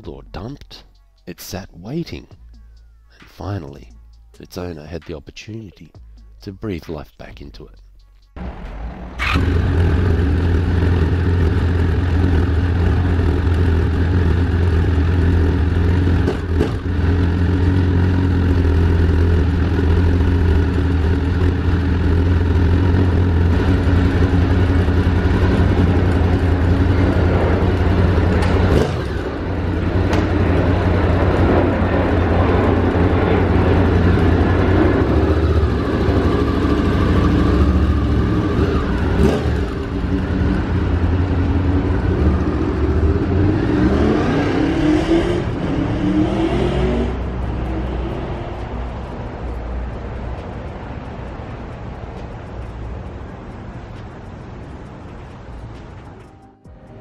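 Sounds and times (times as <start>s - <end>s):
motorcycle engine idling: 8.3s - 43.3s.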